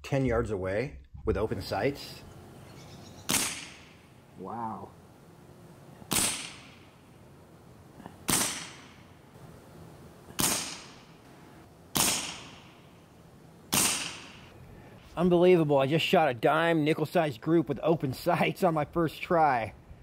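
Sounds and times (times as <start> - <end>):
air pistol shots: 3.2 - 4.0, 6.0 - 7.0, 8.2 - 9.1, 10.3 - 11.2, 11.9 - 12.9, 13.7 - 14.5.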